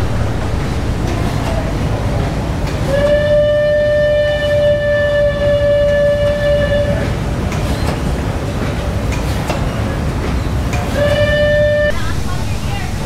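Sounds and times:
low rumble: 0.0s - 4.3s
horn long steady note: 0.0s - 7.1s, 11.0s - 12.0s.

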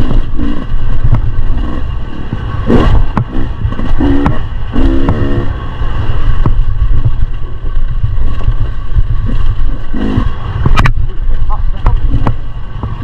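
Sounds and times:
two-stroke motorcycle engine: 0.0s - 13.0s.

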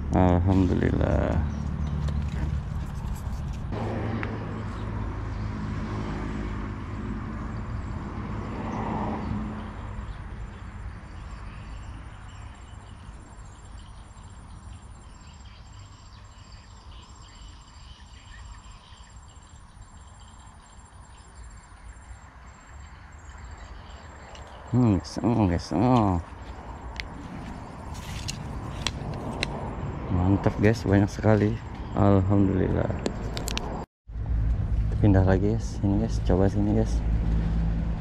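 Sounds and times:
vehicle low rumble: 0.0s - 38.0s
high-pitched insect trill: 9.6s - 28.9s.

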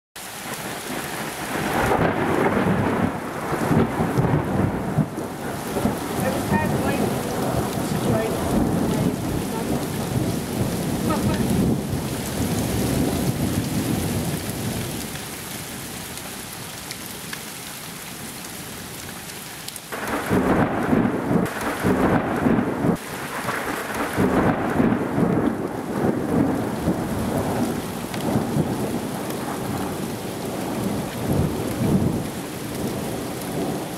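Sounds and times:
heavy rain hissing: 0.2s - 33.9s
thunder rolling: 1.4s - 15.0s, 19.9s - 33.9s
loud thunder clap: 1.5s - 14.4s, 19.9s - 29.9s.

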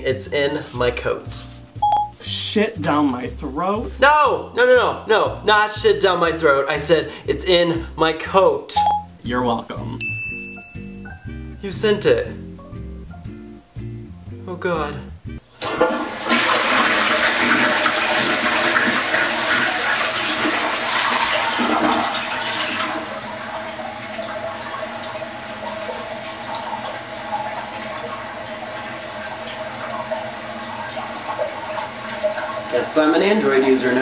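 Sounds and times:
toilet flushing: 15.5s - 34.0s
water flowing into tank: 15.5s - 34.0s.

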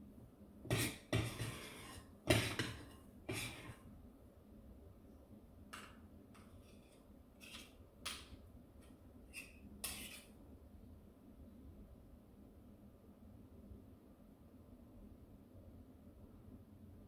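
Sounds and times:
spoons scraping mixing bowl: 0.7s - 3.9s, 6.5s - 7.8s, 9.3s - 10.4s.

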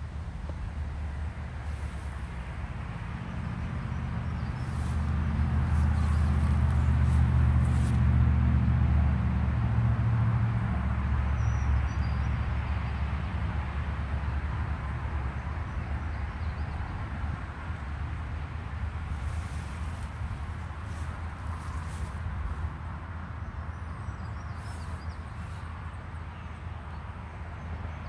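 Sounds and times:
passing motor vehicle engine rumble: 0.0s - 28.0s.

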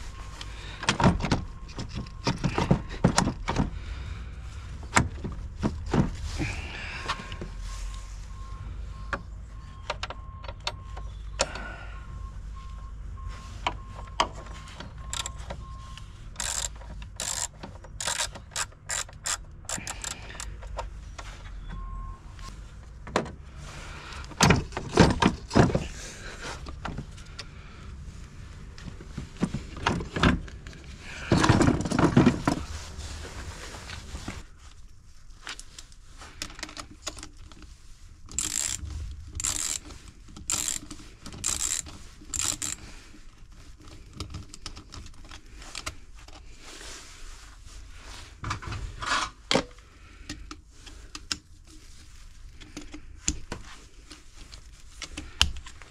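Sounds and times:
faint electronic beep: 0.0s - 0.5s, 7.6s - 16.2s, 21.4s - 22.6s
tools and metal fittings rattling: 16.4s - 20.8s, 38.3s - 42.8s.

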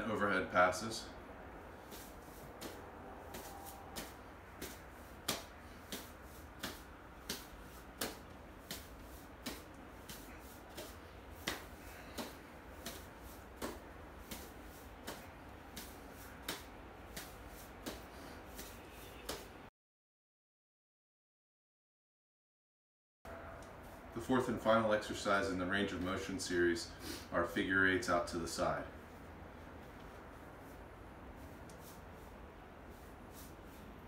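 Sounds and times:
wooden implement slapping into palm: 1.9s - 19.5s.

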